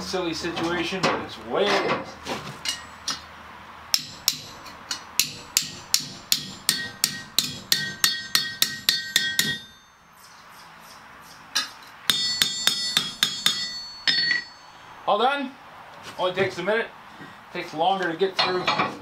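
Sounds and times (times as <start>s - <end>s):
hammer striking metal: 3.9s - 14.8s.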